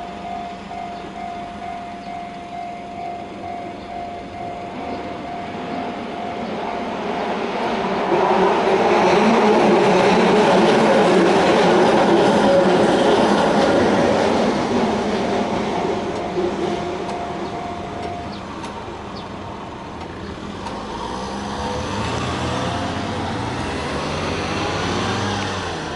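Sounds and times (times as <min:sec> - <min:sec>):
train wheels rumbling on rails: 0:00.0 - 0:25.9
vehicle engine pulling away: 0:20.3 - 0:25.9.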